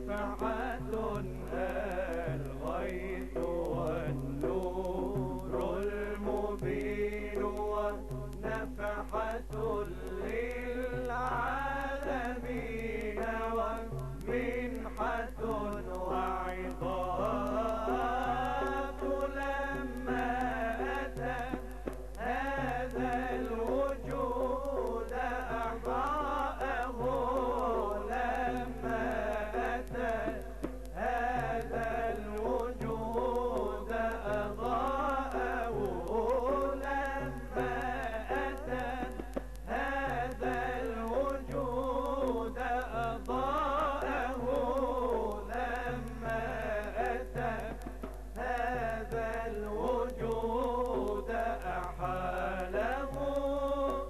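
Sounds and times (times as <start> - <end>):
men singing religious song: 0.0 - 54.0.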